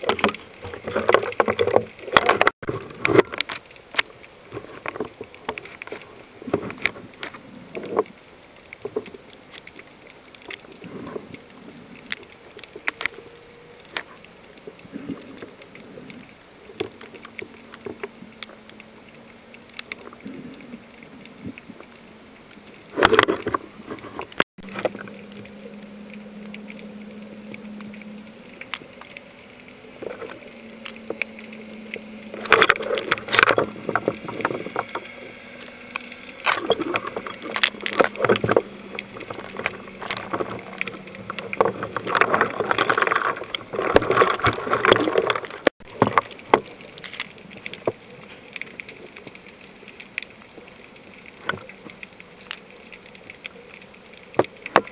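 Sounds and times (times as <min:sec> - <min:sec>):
underwater bubbling: 0:00.0 - 0:54.9
low hum: 0:17.2 - 0:45.7.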